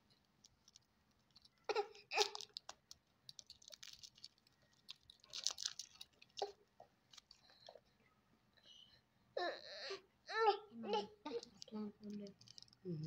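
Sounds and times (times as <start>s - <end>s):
plastic wrapper crinkling: 0.2s - 7.6s, 11.4s - 12.9s.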